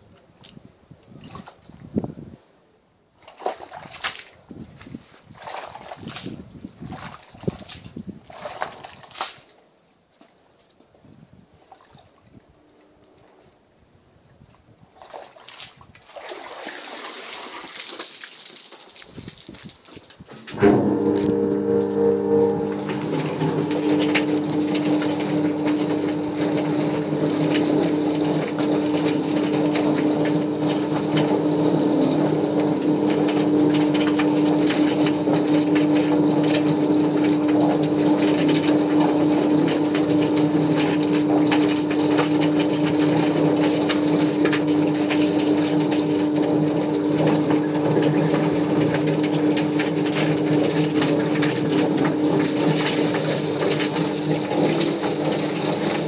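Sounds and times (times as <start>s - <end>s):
plucking machine motor hum: 20.5s - 56.0s.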